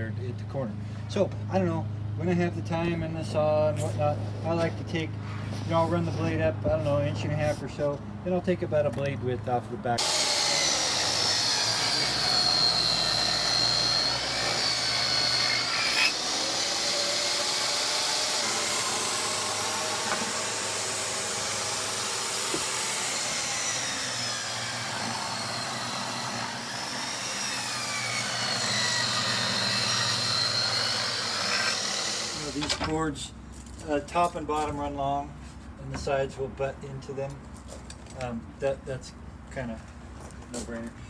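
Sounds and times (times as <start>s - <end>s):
table saw cutting wood: 10.0s - 32.8s.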